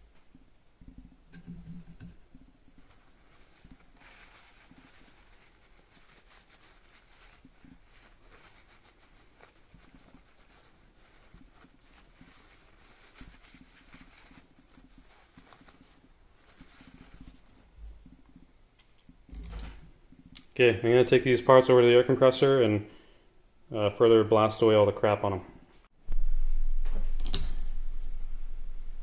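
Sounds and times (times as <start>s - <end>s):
rustling and scrubbing: 2.4s - 18.5s.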